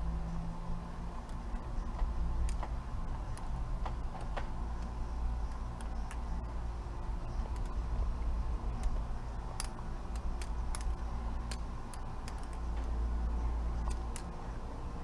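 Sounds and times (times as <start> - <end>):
butterfly knife handles clicking: 1.2 - 14.6.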